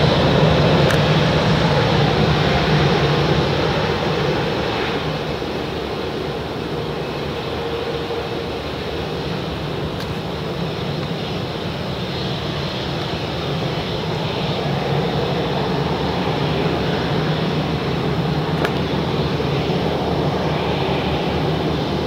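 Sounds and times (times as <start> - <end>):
jet engines at taxi power: 0.0 - 22.0.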